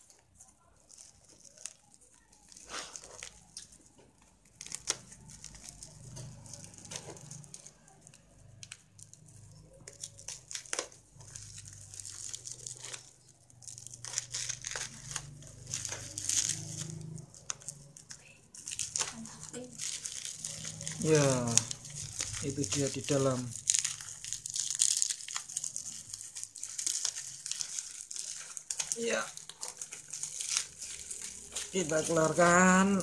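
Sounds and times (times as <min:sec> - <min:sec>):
plastic wrap crinkling: 0:00.0 - 0:33.0
tape tearing: 0:00.8 - 0:33.0
blade slitting packing tape: 0:09.9 - 0:33.0.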